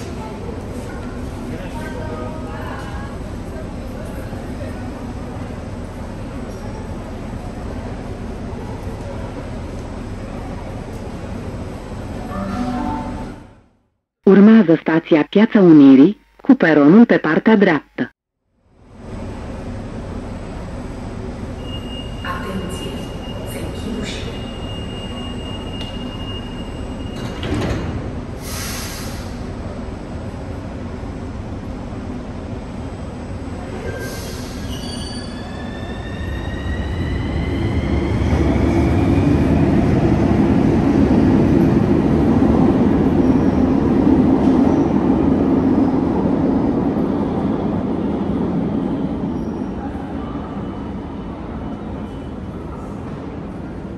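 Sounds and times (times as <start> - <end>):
train doors closing with hiss: 21.8 - 29.6, 33.8 - 35.4.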